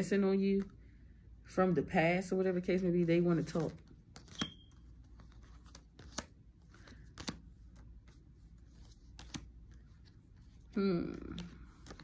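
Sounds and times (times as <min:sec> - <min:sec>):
cards tapping and clicking: 0:03.4 - 0:08.2, 0:08.8 - 0:10.1, 0:11.1 - 0:12.0.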